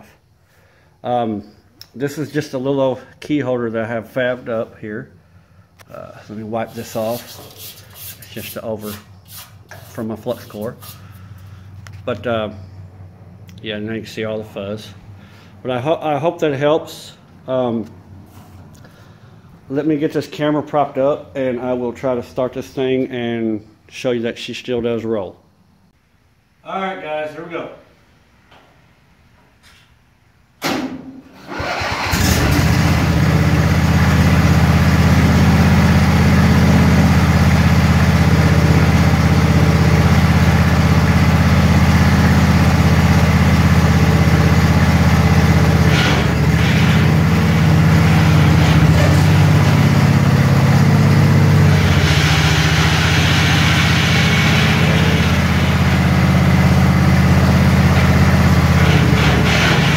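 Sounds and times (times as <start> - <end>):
vehicle engine starting and running: 31.3 - 59.9.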